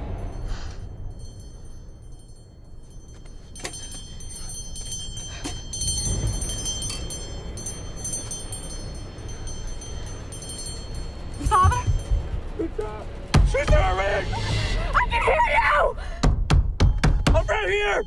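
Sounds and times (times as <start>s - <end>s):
small bell jangling: 0.0s - 13.2s
low rumble: 0.0s - 16.6s.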